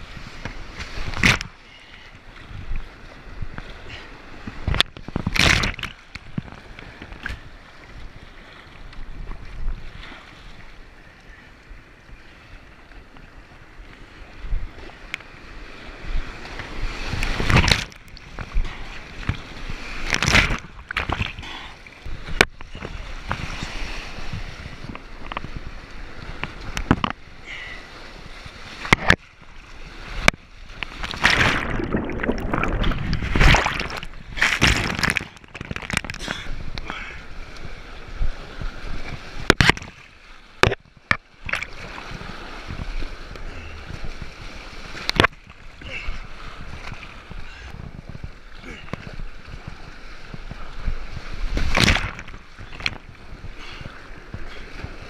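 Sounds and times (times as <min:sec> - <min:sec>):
waves breaking over deck: 0:16.4 - 0:21.6, 0:28.8 - 0:37.3, 0:38.5 - 0:42.9, 0:43.5 - 0:55.0
white water rushing: 0:31.0 - 0:37.4.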